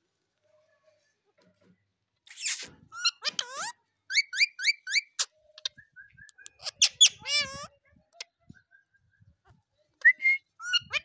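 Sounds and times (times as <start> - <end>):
parakeet calling: 3.0 - 7.7.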